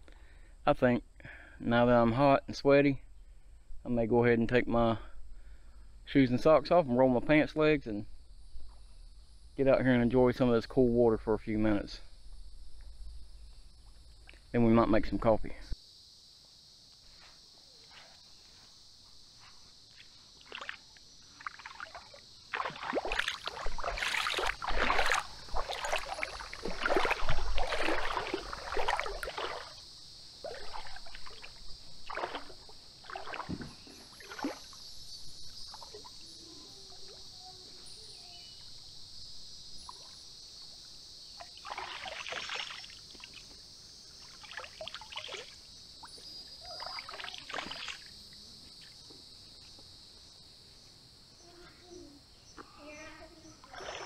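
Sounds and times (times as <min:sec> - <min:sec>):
water splashing from wading: 0:20.4 - 0:34.8, 0:41.4 - 0:43.4, 0:44.2 - 0:45.6, 0:46.6 - 0:48.1, 0:53.6 - 0:54.0.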